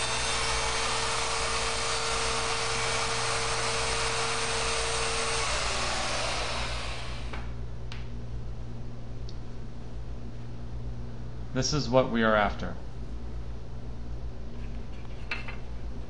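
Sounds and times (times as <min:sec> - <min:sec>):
router motor whining: 0:00.0 - 0:07.5.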